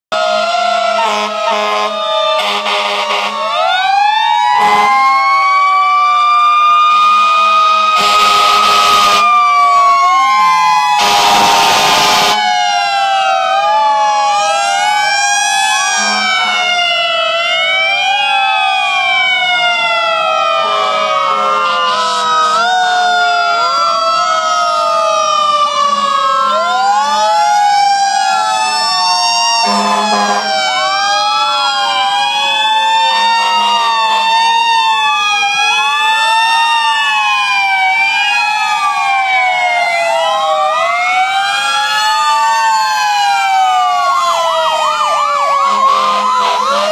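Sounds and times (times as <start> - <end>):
fire engine sirens wailing: 0.1 - 46.9
horn blast: 1.0 - 3.4, 11.0 - 12.4, 16.0 - 16.7, 29.6 - 30.6.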